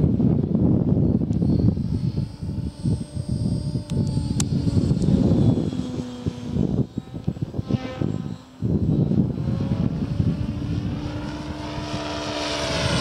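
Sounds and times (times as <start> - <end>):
rc helicopter rotor and motor: 0.0 - 13.0.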